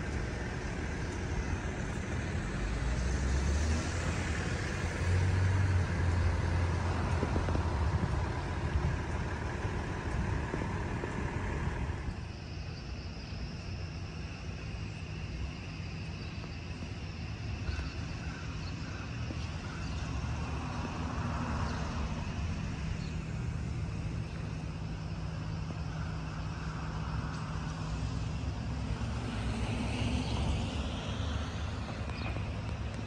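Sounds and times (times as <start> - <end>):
cars passing: 0.0 - 12.3, 13.9 - 33.0
low traffic rumble: 0.0 - 33.0.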